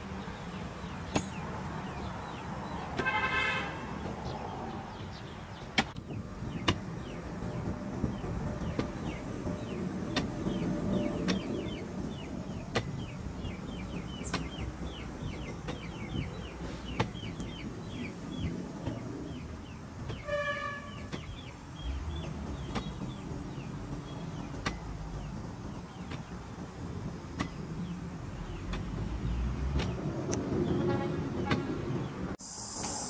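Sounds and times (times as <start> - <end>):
hoe chopping dry soil: 5.6 - 17.5.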